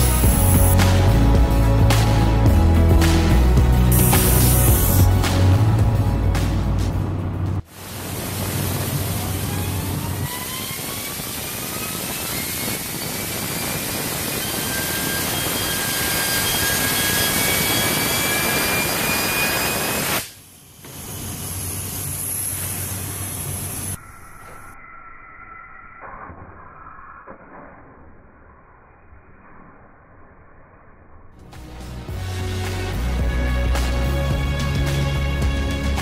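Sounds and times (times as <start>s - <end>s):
rushing air hiss: 3.9s - 5.2s
rising whistling tones: 10.4s - 20.2s, 23.9s - 27.5s.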